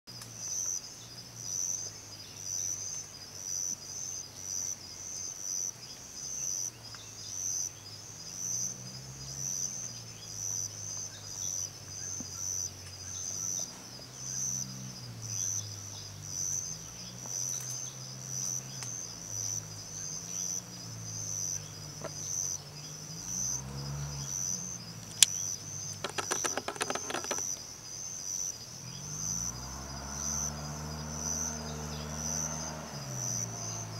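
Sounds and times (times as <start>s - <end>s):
insects chirping: 0.1s - 33.9s
sharp clicks: 25.0s - 27.6s.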